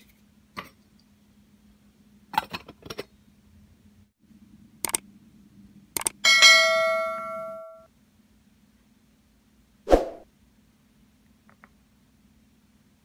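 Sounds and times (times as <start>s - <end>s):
mouse clicks: 6.0s - 6.2s.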